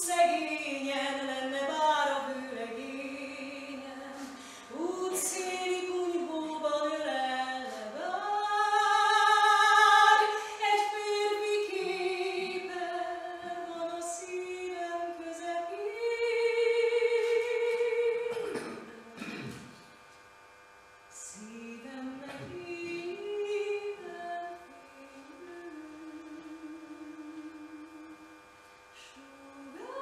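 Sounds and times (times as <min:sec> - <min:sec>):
woman singing solo: 0:00.0 - 0:19.2, 0:29.0 - 0:30.0.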